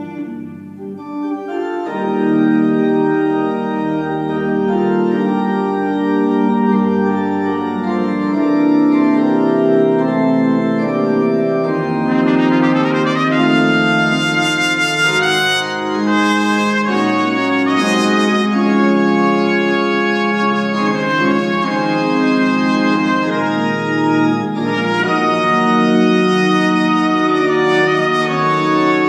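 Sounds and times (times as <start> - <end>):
organ playing chords: 0.0 - 29.0
trumpet: 10.8 - 29.0.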